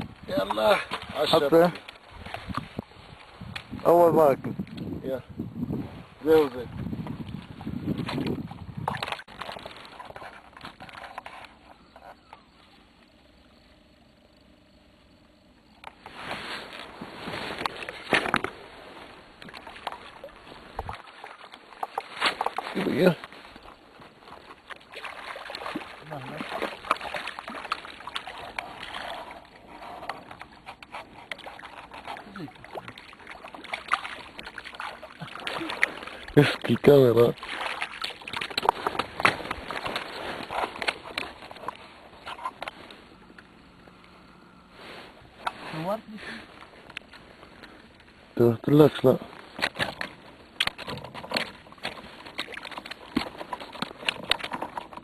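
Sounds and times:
water lapping and trickling: 0.0 - 55.0
handling clicks and rustling: 49.3 - 55.0.

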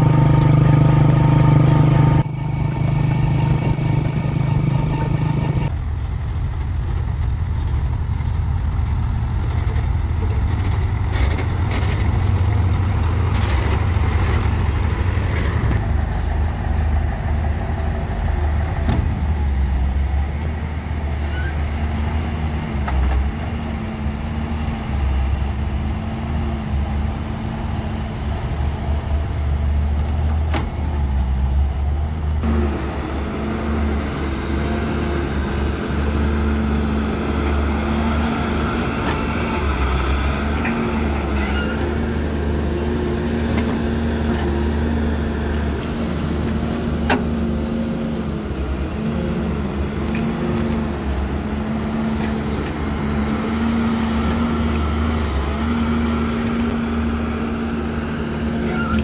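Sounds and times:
motorcycle engine running: 0.0 - 5.7
excavator diesel engine: 0.0 - 59.0.

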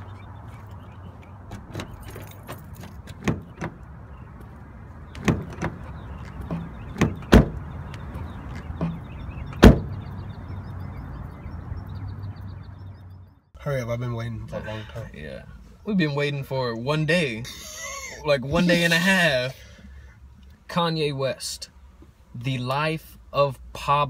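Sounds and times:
car door clicks and knocks: 1.5 - 3.8, 5.1 - 10.0
car door shutting thump: 5.2 - 5.9, 6.5 - 7.6, 8.8 - 10.0.

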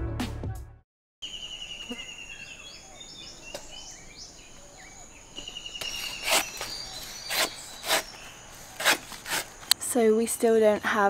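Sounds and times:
birds chirping: 1.2 - 9.8
insects trilling: 1.2 - 9.8
machete chopping coconut: 5.8 - 9.8.

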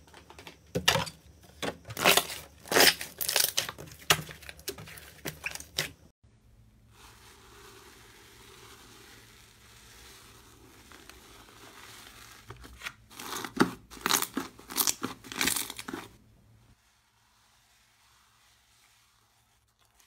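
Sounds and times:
slime crackling as stirred: 6.9 - 16.2, 16.8 - 20.0.

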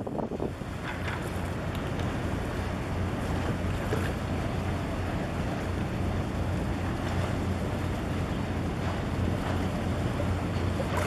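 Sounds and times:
wind noise on microphone: 0.0 - 2.2
tugboat engine drone: 0.0 - 11.0.

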